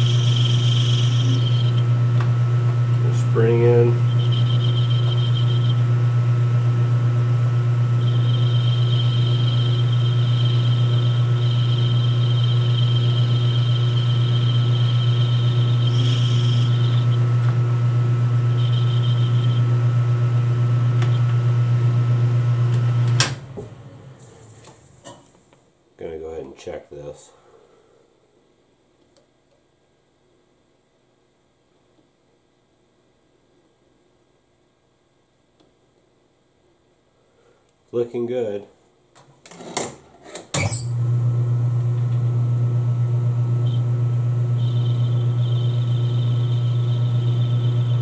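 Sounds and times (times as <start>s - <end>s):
high thin cutting whine: 0.0s - 6.3s, 7.7s - 21.7s
metal lathe motor hum: 0.0s - 23.8s, 41.0s - 48.0s
lathe spinning down: 0.0s - 24.1s.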